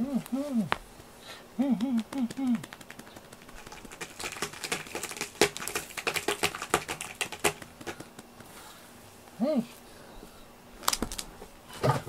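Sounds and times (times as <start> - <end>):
hands patting cat fur: 2.0 - 8.7.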